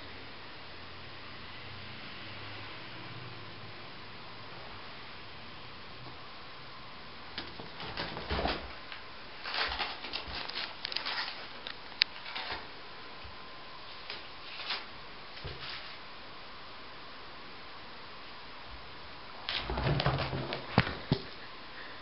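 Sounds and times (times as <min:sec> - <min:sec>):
paper ball crinkling: 0:07.5 - 0:12.7.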